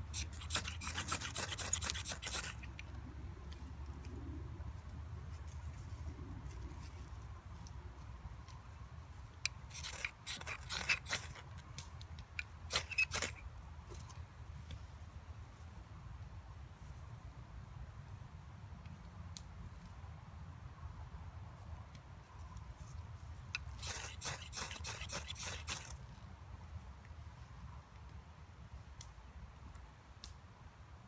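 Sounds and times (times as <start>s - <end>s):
knife scraping fire steel: 0.0s - 3.0s, 9.4s - 11.8s, 12.4s - 13.4s, 23.5s - 26.0s.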